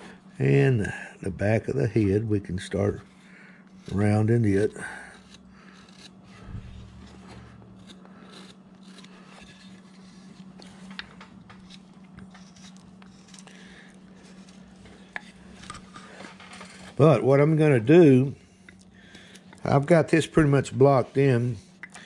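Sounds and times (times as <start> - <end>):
faint low hum: 0.0 - 22.0
carving tools scraping wood: 2.0 - 17.0, 18.0 - 22.0.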